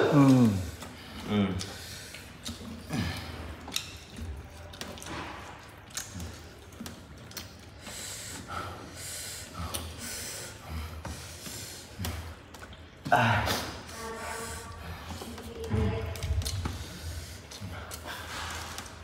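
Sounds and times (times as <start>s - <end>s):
wet chewing and lip-smacking: 0.2s - 8.4s, 9.4s - 10.0s, 10.6s - 13.1s, 14.6s - 19.0s
short noisy breaths: 7.8s - 12.3s.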